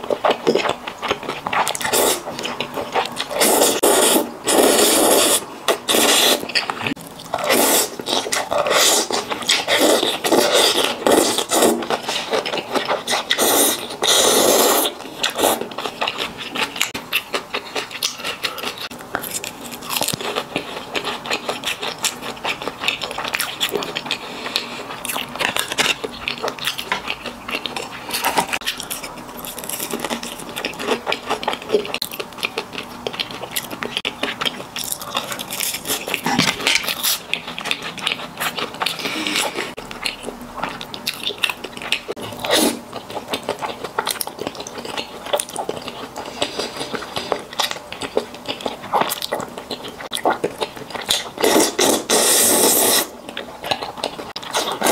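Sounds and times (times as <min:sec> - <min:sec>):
chewing: 0:00.0 - 0:54.9
slurping noodles: 0:03.3 - 0:12.4, 0:13.0 - 0:15.7, 0:42.3 - 0:42.9, 0:51.4 - 0:53.2.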